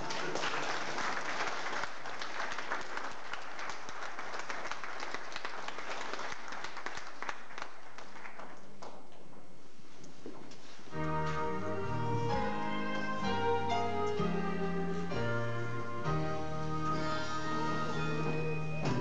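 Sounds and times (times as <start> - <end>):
crowd applauding: 0.0 - 9.0.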